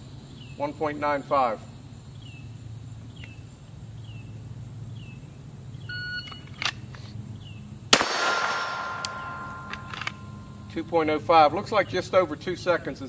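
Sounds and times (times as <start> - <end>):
pistol shot: 7.9 - 10.4
steel target ringing: 8.0 - 10.8.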